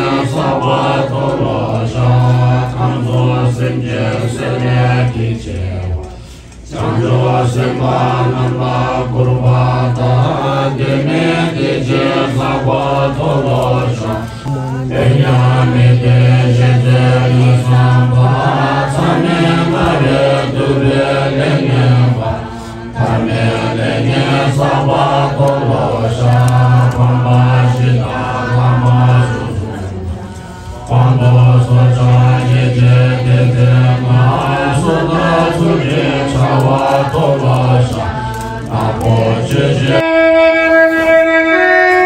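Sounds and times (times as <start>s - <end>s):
congregation chanting prayers: 0.0s - 42.0s.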